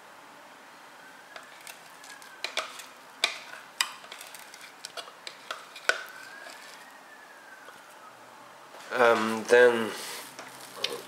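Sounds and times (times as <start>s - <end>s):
metal spoon scraping a bowl: 2.4s - 6.8s.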